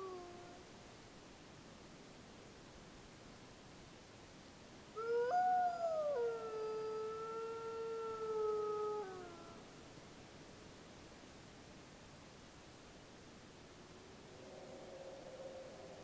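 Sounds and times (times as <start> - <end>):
wolf pup howling: 5.0 - 9.6.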